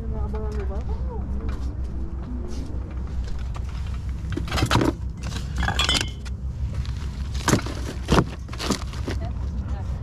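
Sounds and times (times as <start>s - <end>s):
steady low rumble: 0.0s - 10.0s
hard plastic items clinking: 3.4s - 9.4s.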